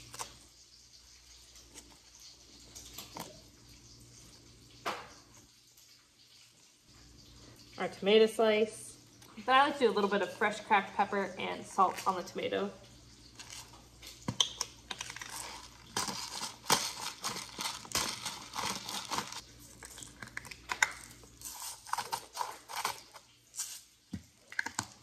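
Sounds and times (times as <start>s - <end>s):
hand spice grinder crackling: 14.9s - 23.8s.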